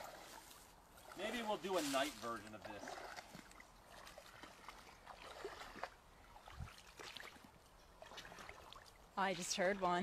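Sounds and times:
boots wading through water: 0:00.0 - 0:10.0
leaf litter rustling underfoot: 0:00.3 - 0:02.5.

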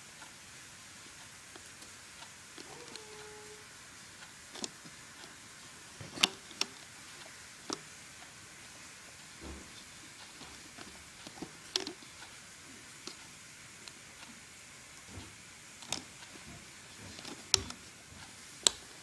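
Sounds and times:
rubber bands snapping on loom: 0:11.2 - 0:12.0.

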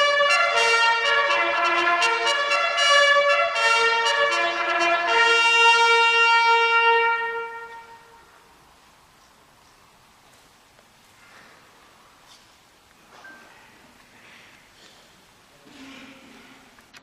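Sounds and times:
bugles playing a military call: 0:00.0 - 0:08.4.

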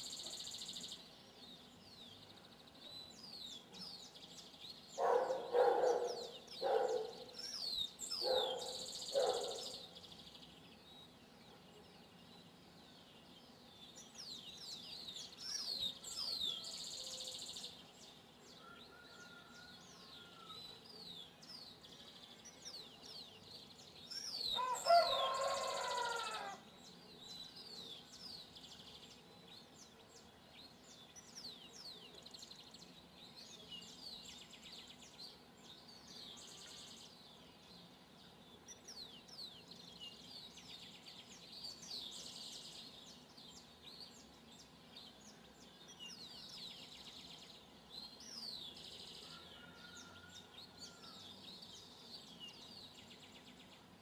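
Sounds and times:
small birds chirping: 0:00.0 - 0:54.0
rooster crowing: 0:18.6 - 0:20.6, 0:24.6 - 0:26.6, 0:49.2 - 0:51.2.

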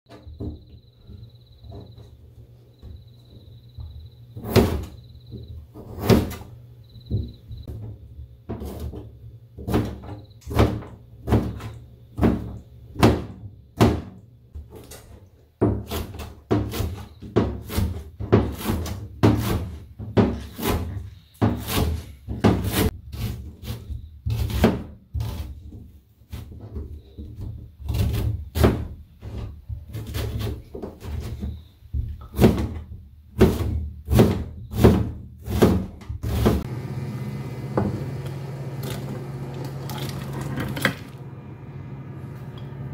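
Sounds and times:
knife chopping on cutting board: 0:15.6 - 0:25.5.

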